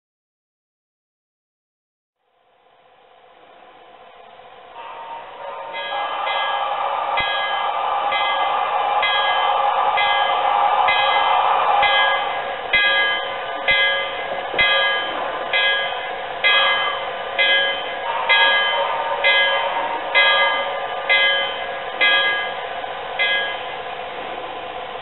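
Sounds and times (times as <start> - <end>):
locomotive bell ringing: 4.7 - 24.0.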